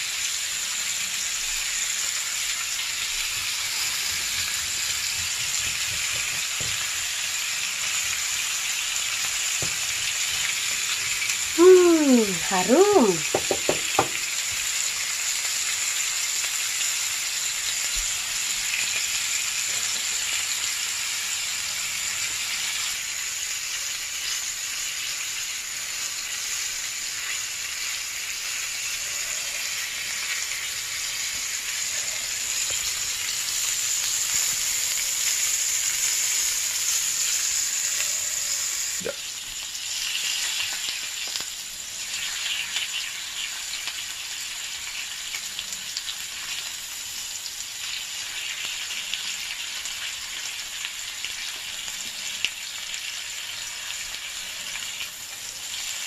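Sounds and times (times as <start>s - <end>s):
steaks sizzling on grill pan: 0.0s - 56.0s
knock on pan: 13.2s - 14.2s.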